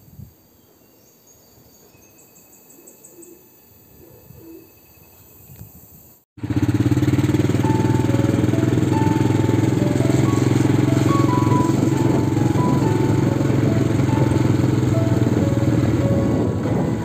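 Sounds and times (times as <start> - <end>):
motorcycle engine running: 6.4 - 17.0.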